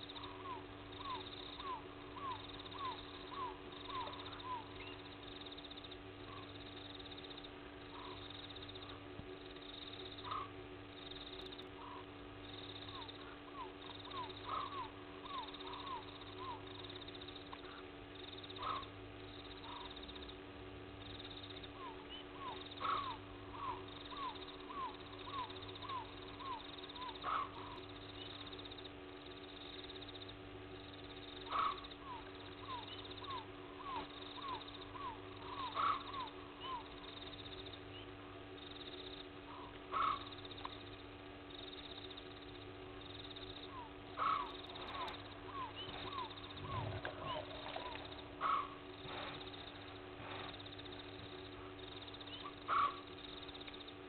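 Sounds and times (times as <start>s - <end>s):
steady hum: 0.0s - 54.0s
loud animal call: 12.9s - 16.7s, 18.6s - 19.0s, 21.8s - 27.9s, 31.4s - 37.1s, 39.5s - 40.5s, 43.6s - 50.5s, 52.2s - 53.5s
short falling animal calls: 43.8s - 49.5s.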